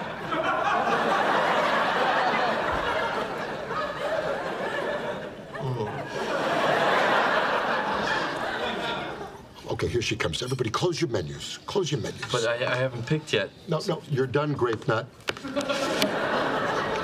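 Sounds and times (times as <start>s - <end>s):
studio audience laughing: 0.0s - 9.4s, 15.4s - 17.0s.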